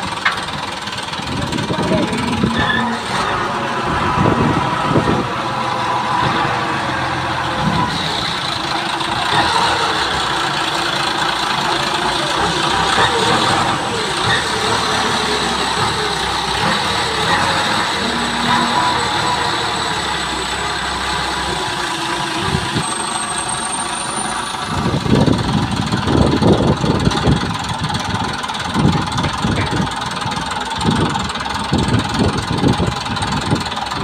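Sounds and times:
forklift engine idling: 0:00.0 - 0:34.0.

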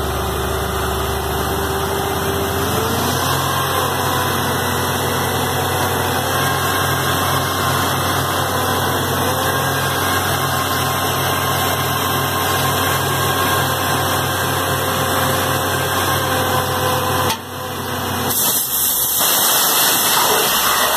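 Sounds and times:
drilling rig machine drone: 0:00.0 - 0:20.9
water blowing hiss: 0:18.3 - 0:20.9.

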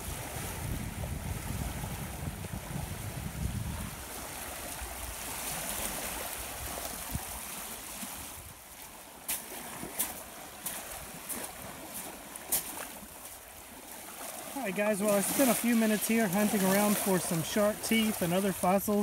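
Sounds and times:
wind rumble: 0:00.0 - 0:08.6
waves lapping on a pebbly shore: 0:00.0 - 0:19.0.

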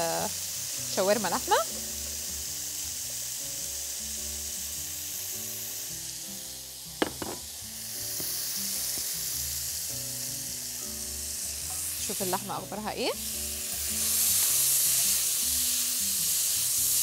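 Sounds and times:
broth sizzling in hot pot: 0:00.0 - 0:17.0
short knock: 0:07.0 - 0:07.4.

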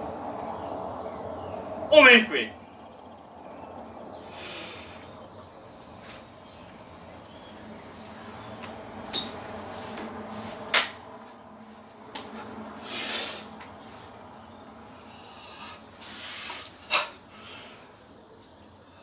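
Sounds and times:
short hiss of air: 0:04.3 - 0:05.1, 0:12.8 - 0:13.5, 0:16.0 - 0:17.8.

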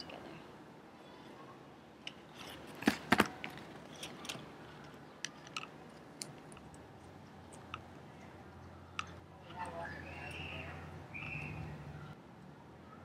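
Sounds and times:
wires and tape handling: 0:02.0 - 0:11.7.

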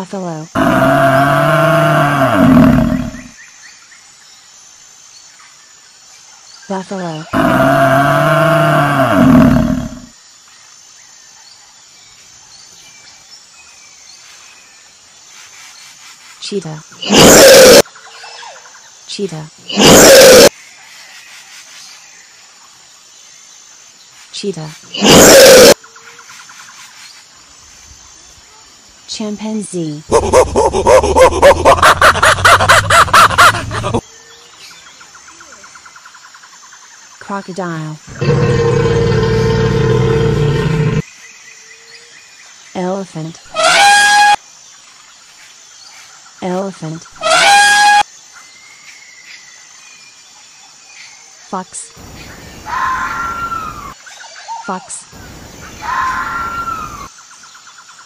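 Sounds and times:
faint outdoor background: 0:00.0 - 0:58.0
chimpanzee hooting: 0:17.0 - 0:17.8, 0:19.7 - 0:20.5, 0:25.0 - 0:25.8, 0:30.1 - 0:34.0, 0:43.5 - 0:44.4, 0:47.2 - 0:48.0.

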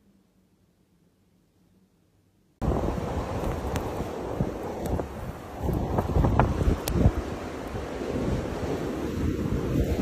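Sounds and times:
storm wind buffeting microphone: 0:02.6 - 0:10.0
sharp crackles: 0:03.2 - 0:08.5.

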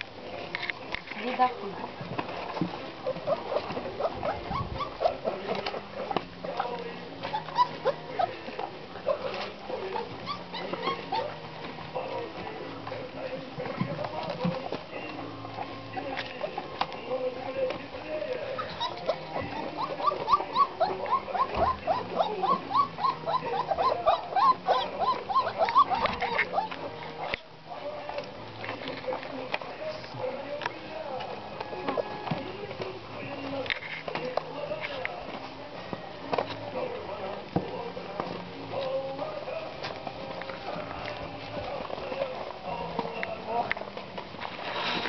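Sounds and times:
puppies squeaking and whimpering: 0:02.8 - 0:12.0, 0:14.3 - 0:17.6, 0:18.4 - 0:27.5.

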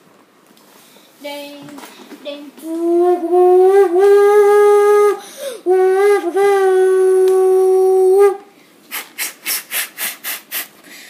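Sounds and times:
boy imitating train whistle: 0:02.7 - 0:10.7
hissing chuff-like strokes: 0:08.9 - 0:10.9.

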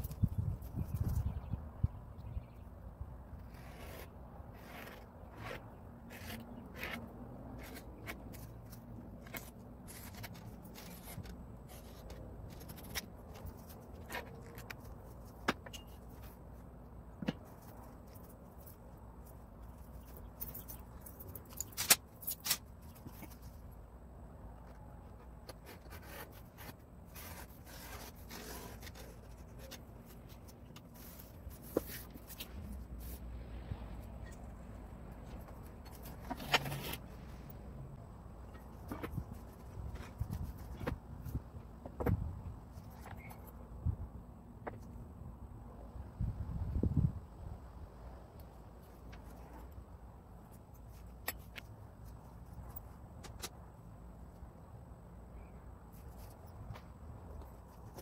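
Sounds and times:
strap cutter on leather edge: 0:03.4 - 0:08.5
straightedge scraping leather hide: 0:03.4 - 0:16.4, 0:25.5 - 0:33.2, 0:35.9 - 0:37.2.

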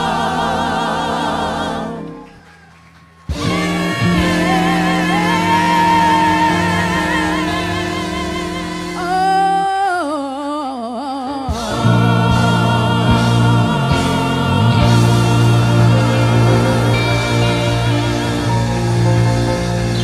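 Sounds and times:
band playing: 0:03.2 - 0:09.7, 0:11.6 - 0:20.0
heavy bass: 0:03.3 - 0:09.7, 0:11.5 - 0:20.0
women singing with vibrato: 0:03.4 - 0:18.8.

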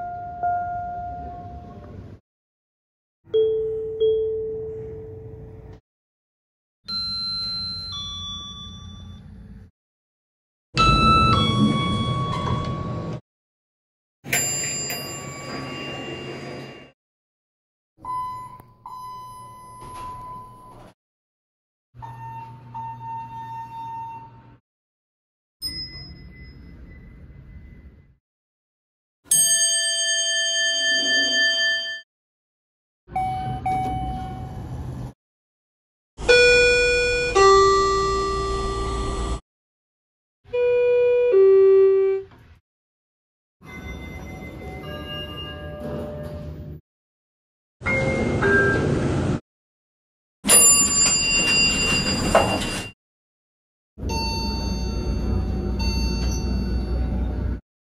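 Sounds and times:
electronic elevator chime: 0:06.9 - 0:09.4, 0:14.3 - 0:16.9, 0:18.0 - 0:20.9, 0:54.1 - 0:57.3
two-tone falling elevator chime: 0:06.9 - 0:09.4
bell-like elevator chime: 0:06.9 - 0:09.5, 0:14.3 - 0:17.0, 0:25.6 - 0:28.0, 0:29.3 - 0:32.0, 0:43.6 - 0:46.6, 0:50.5 - 0:53.0, 0:54.0 - 0:57.4.

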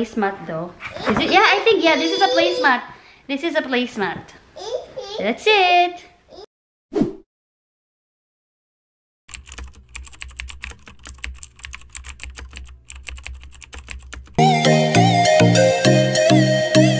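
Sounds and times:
loud electronic music: 0:14.4 - 0:16.9.

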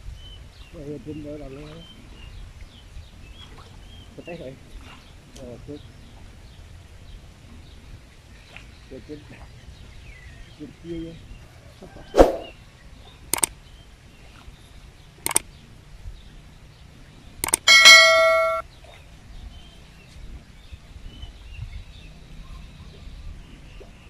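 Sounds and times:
button clicks: 0:17.4 - 0:18.6
bell-like notification chime: 0:17.7 - 0:18.6.

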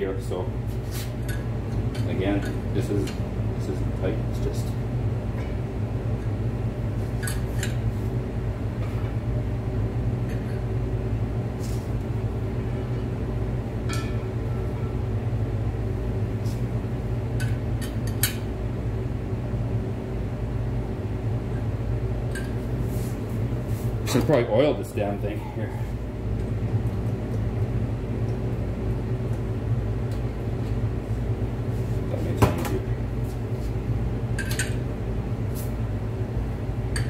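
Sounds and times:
low machine hum: 0:00.0 - 0:37.0.

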